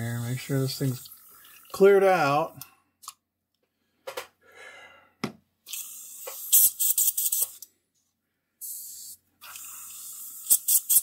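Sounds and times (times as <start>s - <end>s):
airbrush blowing compressed air: 5.7s - 7.6s, 8.6s - 11.0s.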